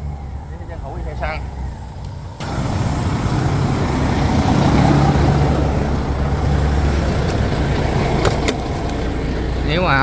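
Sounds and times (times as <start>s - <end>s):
diesel engine idling: 0.0s - 10.0s.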